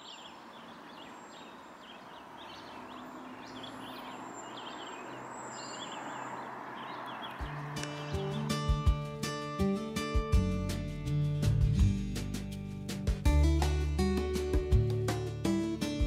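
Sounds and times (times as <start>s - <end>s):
songbirds chirping: 0.0s - 11.2s.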